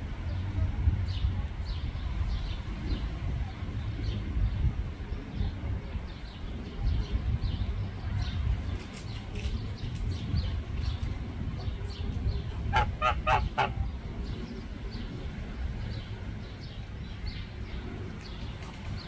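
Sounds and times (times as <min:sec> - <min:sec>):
small birds chirping: 0:03.8 - 0:19.0
larger bird calls: 0:12.7 - 0:13.8.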